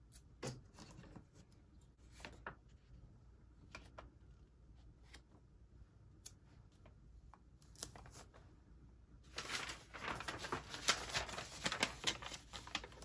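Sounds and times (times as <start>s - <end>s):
paper rustling and crinkling: 9.2s - 13.0s.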